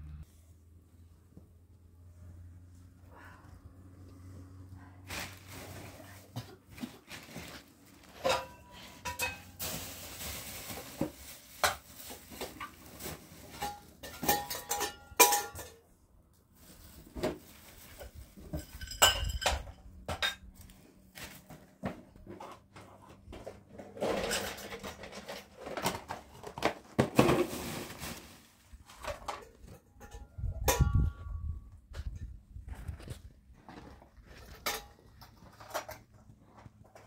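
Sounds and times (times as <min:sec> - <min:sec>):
plastic bag rustling: 0:05.0 - 0:14.6, 0:16.5 - 0:18.9, 0:24.0 - 0:29.4
dishes clinking: 0:13.6 - 0:15.8, 0:18.6 - 0:20.4.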